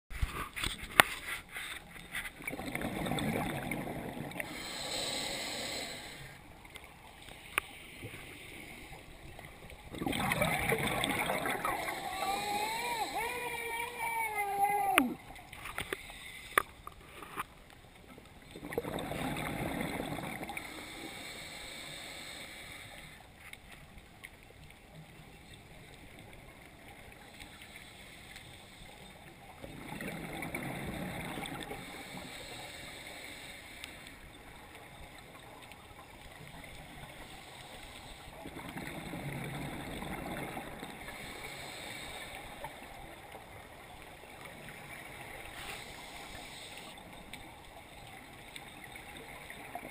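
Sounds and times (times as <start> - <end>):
exhaled bubbles rushing underwater: 2.4 - 4.6, 9.4 - 13.2, 18.5 - 20.8, 29.6 - 31.9
quiet regulator hiss: 3.5 - 9.9, 11.0 - 18.6, 19.7 - 29.7, 30.9 - 49.8.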